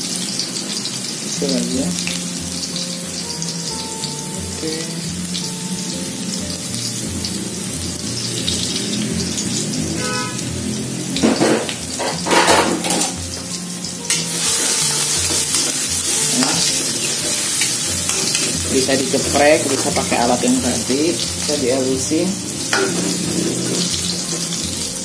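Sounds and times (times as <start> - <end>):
garlic sizzling in oil: 0.0 - 25.0
metal spatula stirring: 14.1 - 21.2, 22.6 - 24.8.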